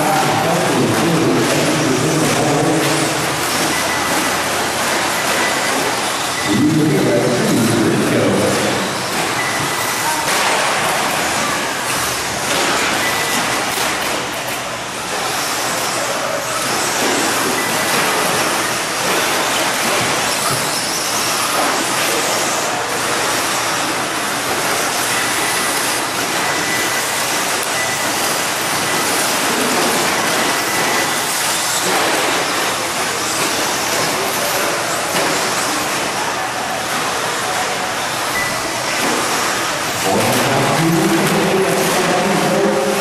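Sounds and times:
tyres churning dirt: 40.0 - 43.0.

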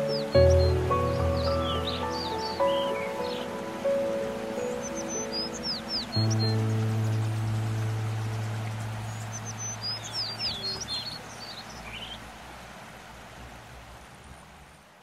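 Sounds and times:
held music chord: 0.0 - 9.6
songbird chirping: 0.0 - 13.0
steady hiss: 0.0 - 15.0.

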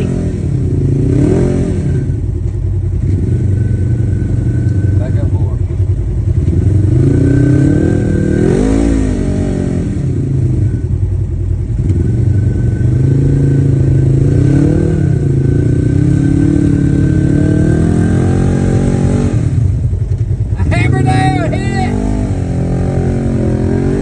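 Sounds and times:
engine revving: 0.0 - 24.0.

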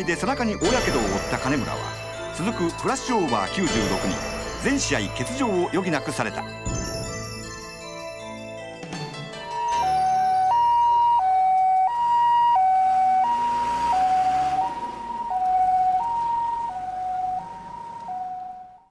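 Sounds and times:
ambulance two-tone siren: 9.4 - 18.9.

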